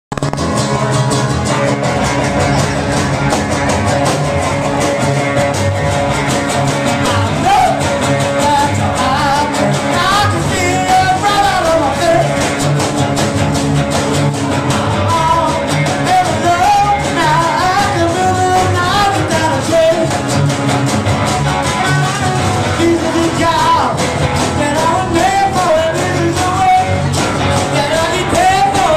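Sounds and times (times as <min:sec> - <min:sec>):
drums: 0:00.1 - 0:28.9
electric guitar: 0:00.1 - 0:28.9
strummed acoustic guitar: 0:00.1 - 0:28.9
man singing into a microphone: 0:07.0 - 0:12.5, 0:15.0 - 0:20.2, 0:21.8 - 0:28.9.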